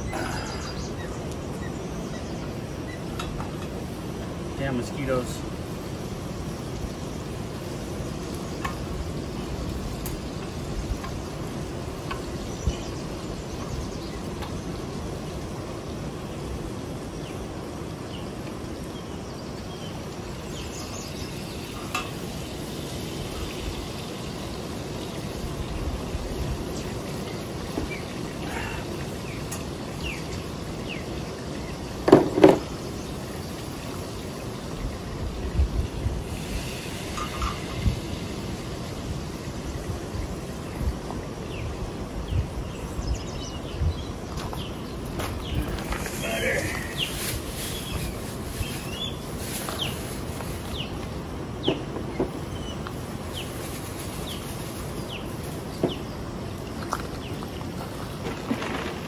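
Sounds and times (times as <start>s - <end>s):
wind rumbling on microphone: 0.0s - 59.0s.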